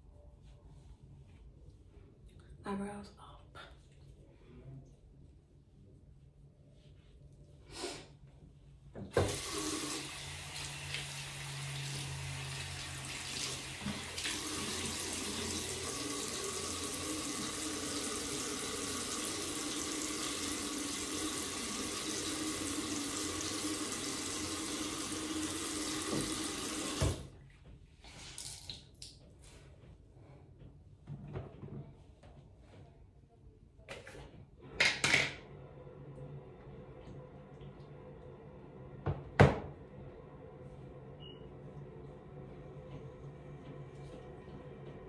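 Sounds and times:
water running into basin: 0:09.1 - 0:27.3.

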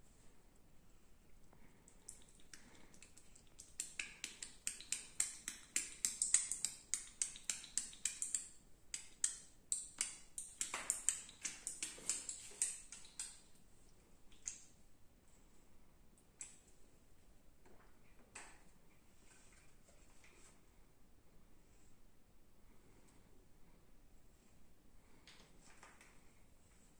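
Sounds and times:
fingers tapping on skin: 0:02.1 - 0:13.4.

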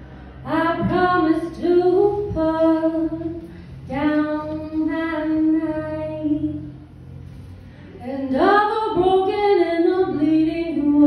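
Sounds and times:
woman singing a cappella: 0:00.4 - 0:06.7, 0:08.0 - 0:11.0
singer breath: 0:07.2 - 0:08.0.

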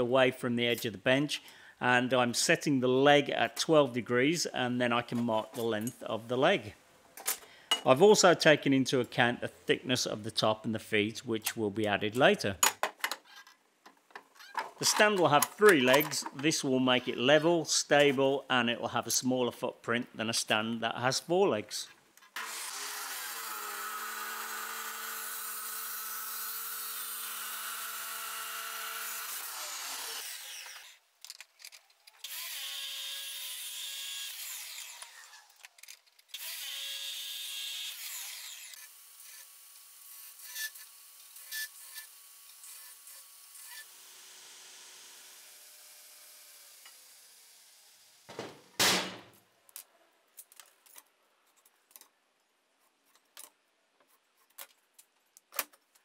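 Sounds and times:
chop saw cutting steel: 0:22.4 - 0:31.0, 0:32.2 - 0:35.6, 0:36.3 - 0:39.5, 0:40.1 - 0:47.6.

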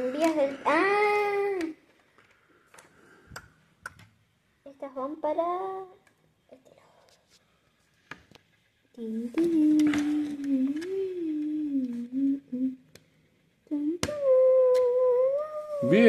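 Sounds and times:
person humming: 0:09.0 - 0:12.9, 0:13.7 - 0:16.0.

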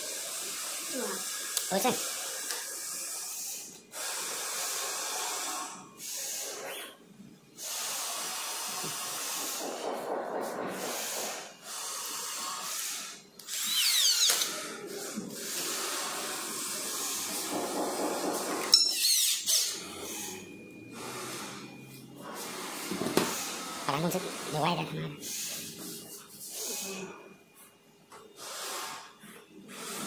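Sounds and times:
cordless drill running: 0:11.0 - 0:14.6.

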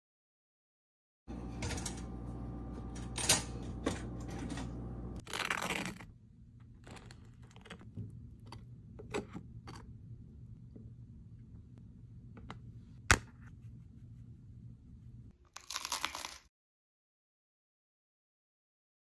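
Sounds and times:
steady hum: 0:01.3 - 0:05.2.

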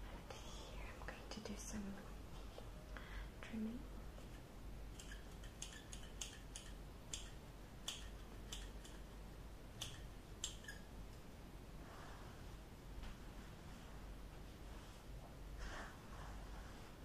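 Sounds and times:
scissors snipping: 0:05.0 - 0:09.1, 0:09.8 - 0:10.9.

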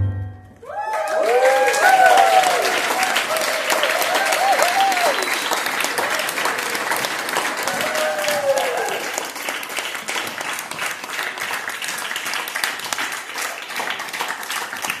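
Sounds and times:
brief cheer: 0:00.6 - 0:06.5, 0:07.6 - 0:09.2
audience applauding: 0:00.6 - 0:15.0.

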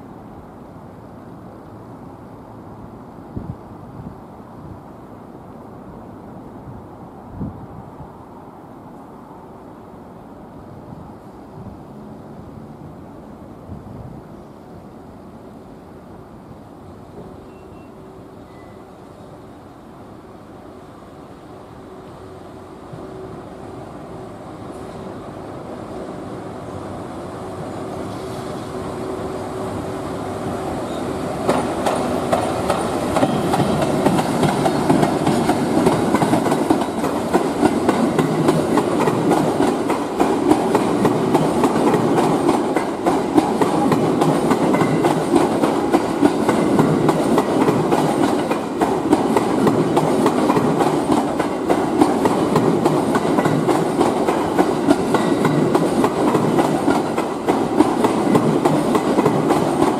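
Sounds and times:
train wheels clattering over rail joints: 0:31.4 - 0:59.9.

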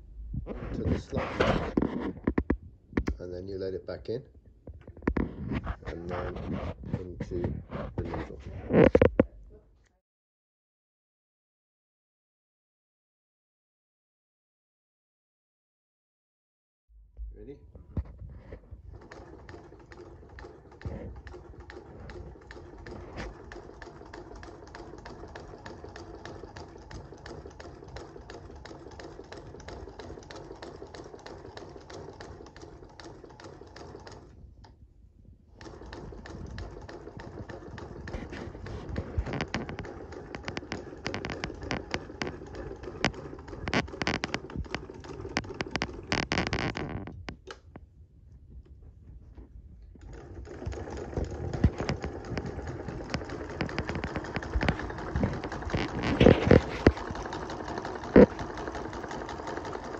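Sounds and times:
sewing machine stitching: 0:04.9 - 0:09.2, 0:18.4 - 0:34.4, 0:35.5 - 0:47.4, 0:49.9 - 0:59.9.

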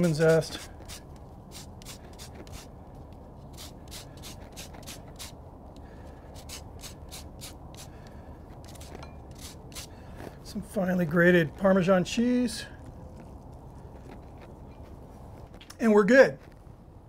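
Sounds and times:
lemon rasping on grater: 0:00.0 - 0:02.7, 0:03.4 - 0:05.4, 0:06.3 - 0:07.9, 0:08.6 - 0:09.9.

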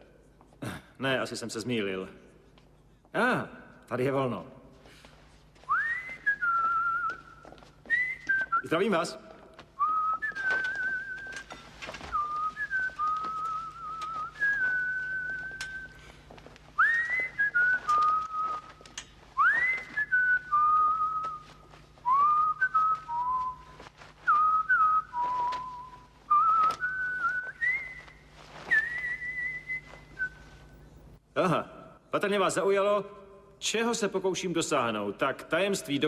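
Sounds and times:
man whistling a slow tune: 0:05.7 - 0:08.7, 0:09.8 - 0:16.1, 0:16.8 - 0:31.0.

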